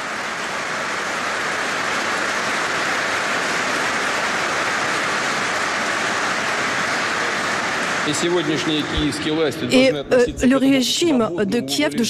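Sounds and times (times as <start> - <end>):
audience applause: 0.0 - 10.2.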